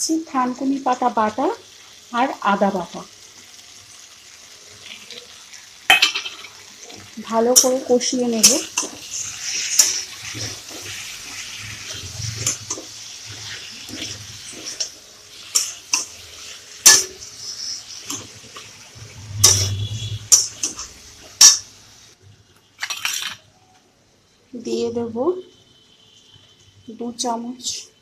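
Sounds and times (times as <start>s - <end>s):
vegetables sizzling in hot oil: 0.0s - 23.4s
metal spatula scraping a pan: 5.9s - 21.7s.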